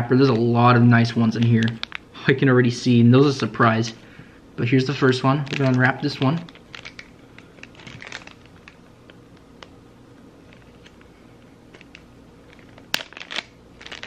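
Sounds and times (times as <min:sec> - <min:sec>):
plastic bag crinkling: 0:00.2 - 0:02.2, 0:05.0 - 0:09.7, 0:11.7 - 0:14.0.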